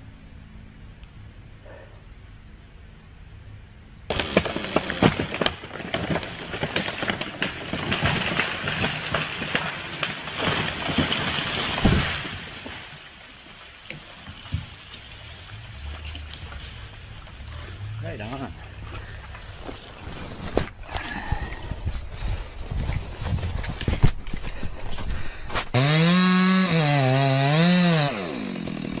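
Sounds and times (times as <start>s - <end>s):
tree trunk thudding on ground: 4.1s - 13.1s
wood snapping and crackling: 4.1s - 26.0s
branches crashing through treetops: 4.1s - 29.0s.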